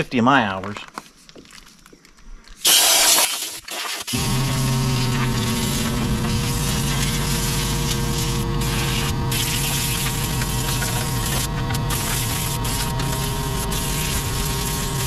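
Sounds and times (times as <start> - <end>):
air compressor running: 2.7 - 15.0.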